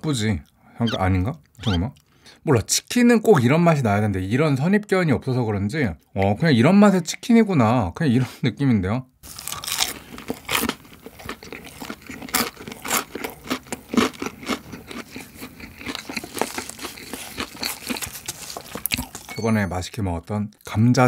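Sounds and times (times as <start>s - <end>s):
crunchy chewing of fried chicken: 9.2s - 19.4s.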